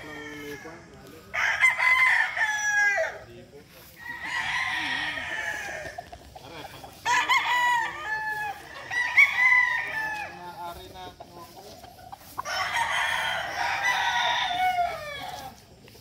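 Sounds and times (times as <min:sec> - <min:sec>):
roosters crowing: 0:00.0 - 0:16.0.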